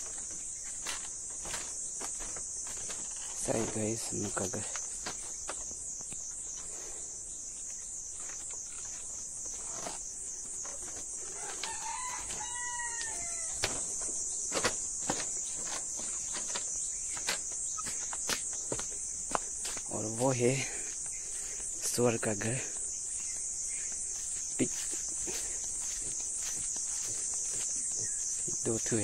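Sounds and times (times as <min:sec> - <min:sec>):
pulsing insect chorus: 0:00.0 - 0:29.0
rooster crowing: 0:11.2 - 0:13.8.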